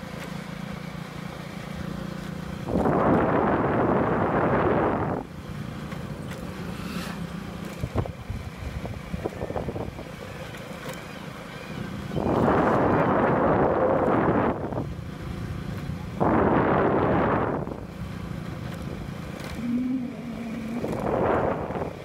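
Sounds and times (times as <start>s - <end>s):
low vehicle hum: 0.0s - 22.0s
wind gusts on microphone: 2.7s - 5.3s, 12.1s - 14.9s, 16.0s - 17.9s, 19.5s - 22.0s.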